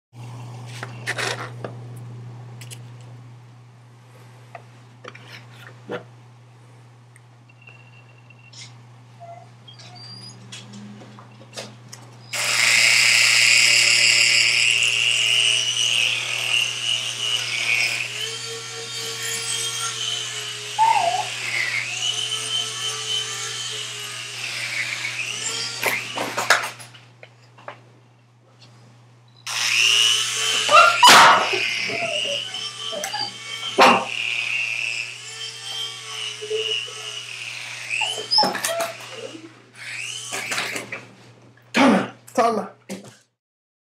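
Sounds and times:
toy helicopter motor whine: 12.3 - 26.9, 29.4 - 40.9
dog barking: 30.7 - 31.5, 33.8 - 34.1.

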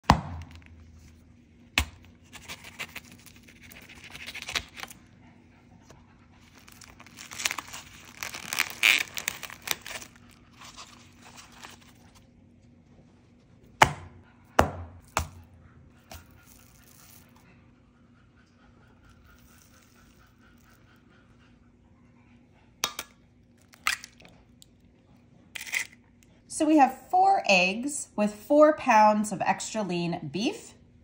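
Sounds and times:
plastic film tearing and crinkling: 1.9 - 5.0, 6.4 - 12.0.

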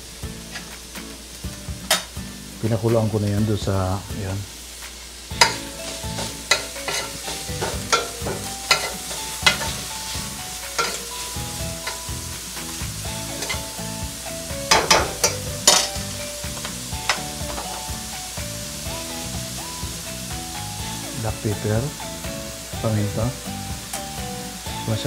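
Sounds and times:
food sizzling: 0.0 - 25.0
utensil scraping frying pan: 0.4 - 1.0, 4.6 - 19.9.

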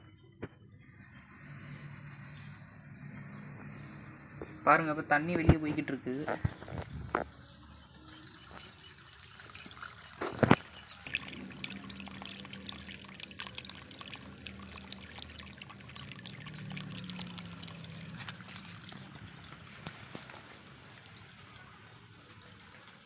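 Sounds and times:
water splashing into a puddle: 8.3 - 23.0.

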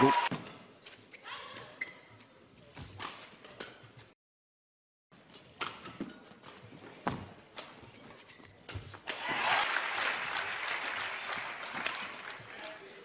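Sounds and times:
crowd cheering and applause: 0.0 - 0.3, 9.1 - 12.6.

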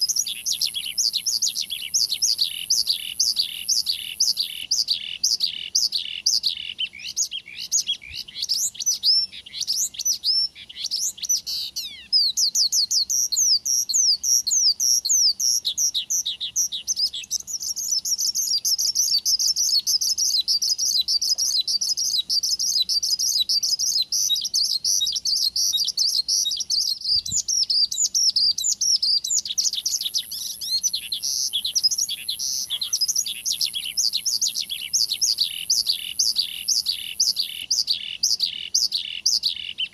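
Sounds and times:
bird singing rapid trills: 0.0 - 39.9.

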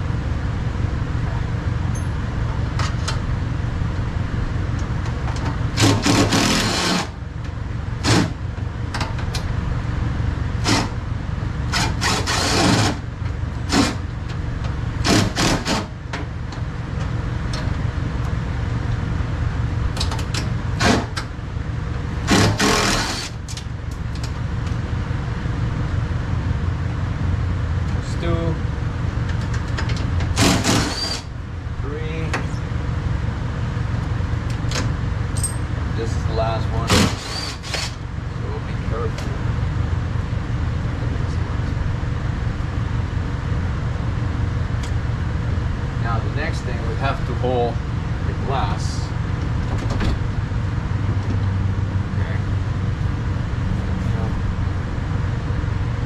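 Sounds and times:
steady low hum: 0.0 - 56.0
wrench clinking on bolts: 35.3 - 35.7.

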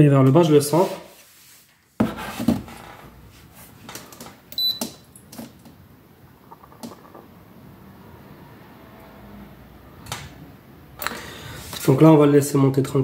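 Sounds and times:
thermometer short high beep: 4.6 - 4.8.

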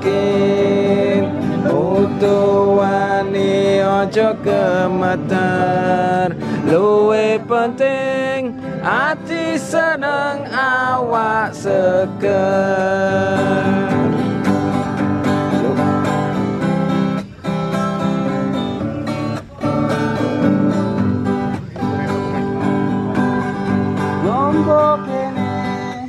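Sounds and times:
acoustic guitar strumming: 0.0 - 26.0.

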